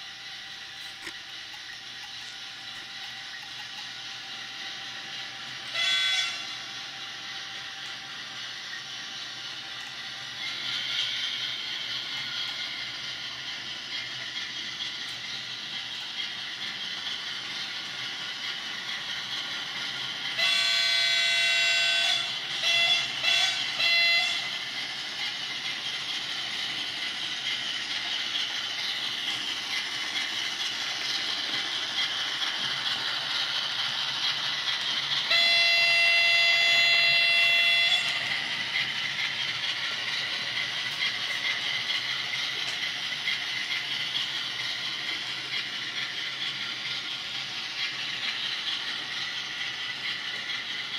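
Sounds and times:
model diesel locomotive engine: 0.0 - 50.9
multi-note locomotive horn: 5.6 - 6.7, 20.4 - 24.6, 35.2 - 38.3.

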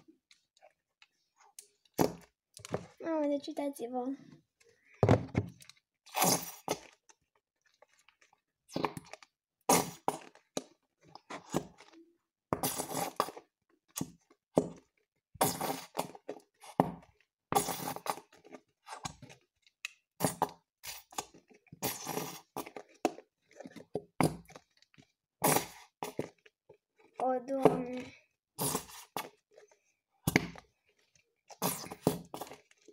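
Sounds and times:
glue bottle squelching: 5.6 - 14.7, 15.4 - 16.9, 17.6 - 32.9.

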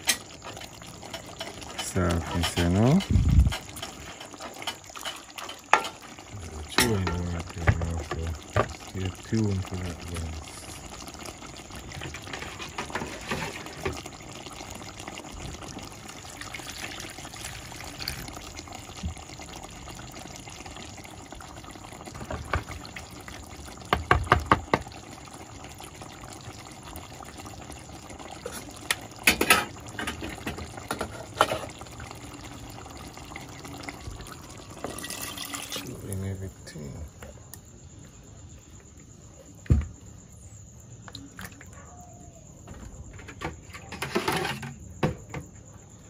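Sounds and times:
liquid pouring into pot: 0.0 - 36.2
pot simmering: 0.0 - 38.8.

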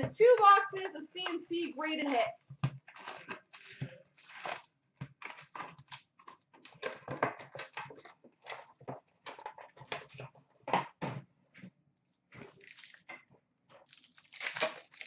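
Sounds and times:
foil card packs crinkling: 0.2 - 10.2, 12.4 - 13.1, 13.8 - 15.0.

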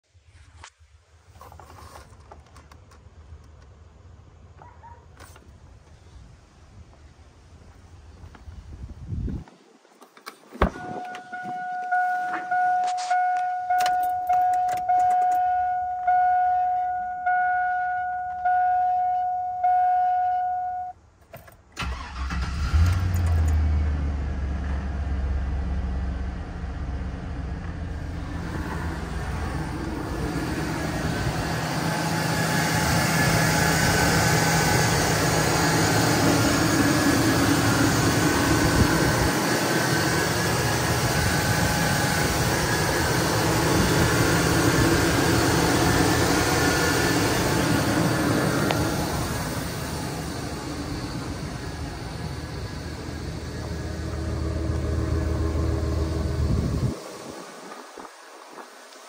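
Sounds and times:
dashboard warning chime: 10.6 - 21.0
engine idling: 21.8 - 56.9.

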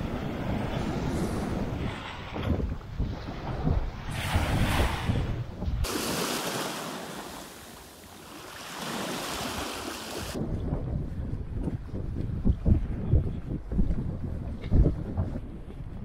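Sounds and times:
wind buffeting microphone: 0.0 - 5.9, 9.2 - 16.0
small waves washing on sand: 5.8 - 10.4.

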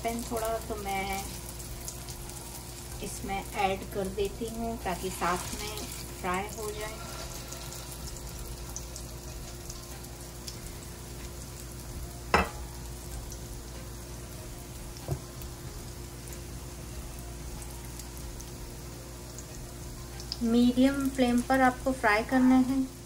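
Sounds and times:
food sizzling in frying pan: 0.0 - 23.0.

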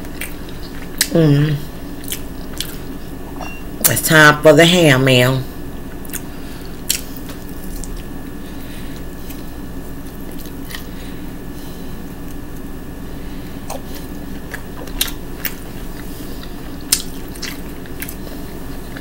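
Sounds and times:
chewing and mouth smacking: 0.0 - 1.1, 2.0 - 3.0, 5.9 - 6.3, 6.9 - 8.1, 8.9 - 10.9, 13.6 - 19.0
steady low hum: 0.0 - 19.0.

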